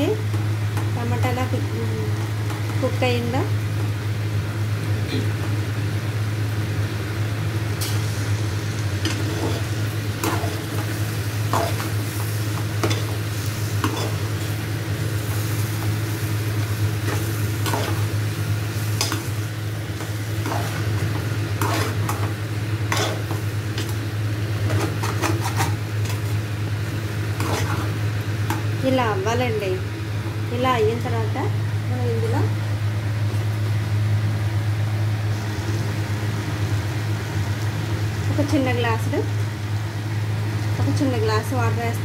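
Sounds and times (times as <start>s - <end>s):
curry sizzling: 0.0s - 42.0s
steady low hum: 0.0s - 42.0s
metal spoon scraping a pot: 24.7s - 25.8s, 27.4s - 27.9s.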